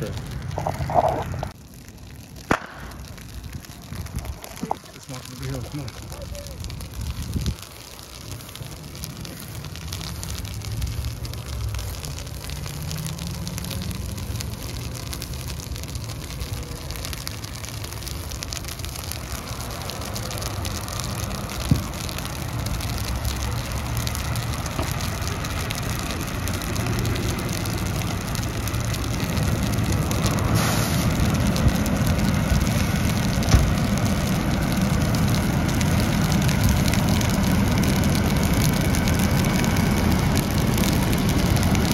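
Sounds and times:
fire crackling and hissing: 0.0s - 41.9s
fire engine rumbling and idling: 0.0s - 41.9s
sharp pops: 2.3s - 7.7s, 28.1s - 41.9s.

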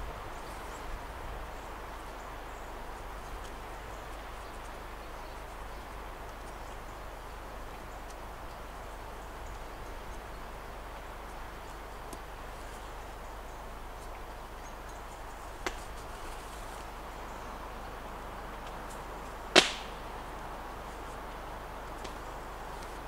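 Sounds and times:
background hiss: 0.0s - 23.0s
loud sharp snap: 19.5s - 20.0s.

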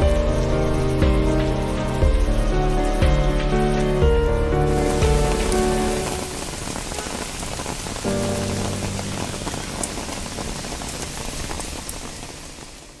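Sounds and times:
soft background music chord: 0.0s - 7.3s, 8.0s - 10.6s
rain falling on water and leaves: 0.0s - 13.0s.

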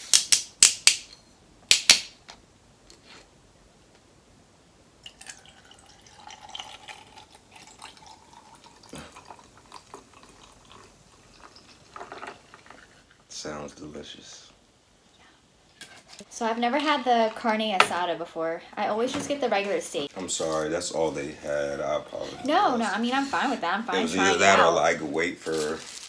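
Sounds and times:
fizzy drink poured over ice: 5.0s - 13.2s.

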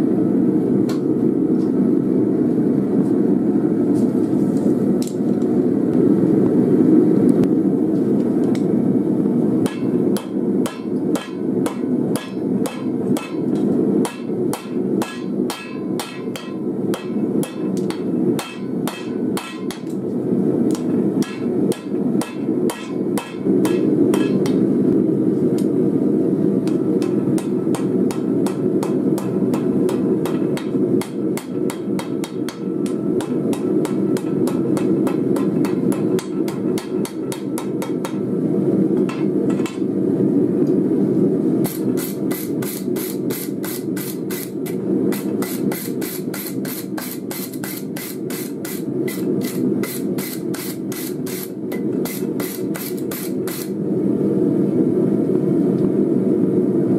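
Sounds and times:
forge burner running: 0.0s - 56.9s
hammer striking metal on anvil: 9.6s - 19.9s, 20.7s - 24.6s, 26.6s - 38.3s, 39.0s - 39.9s, 41.6s - 53.7s.

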